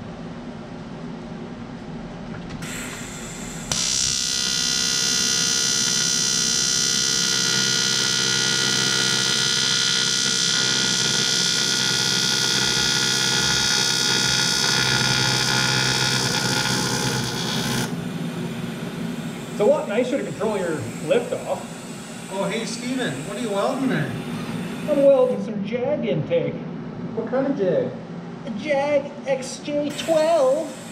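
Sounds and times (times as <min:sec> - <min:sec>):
welding arc buzzing with hiss: 0:02.6 - 0:25.2, 0:29.9 - 0:30.9.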